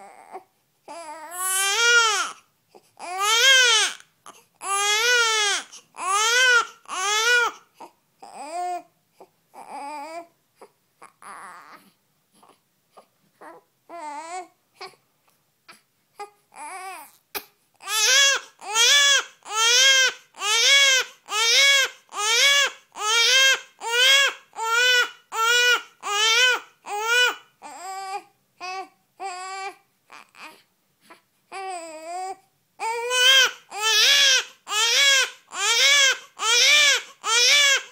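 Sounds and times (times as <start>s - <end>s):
newborn baby crying: 0.0s - 37.9s.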